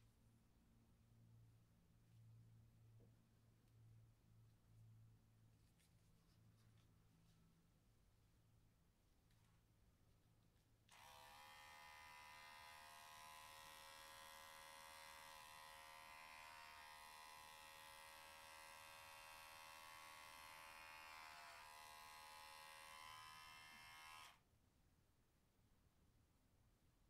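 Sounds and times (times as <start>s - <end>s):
electric hair clipper whining: 10.9s - 24.4s.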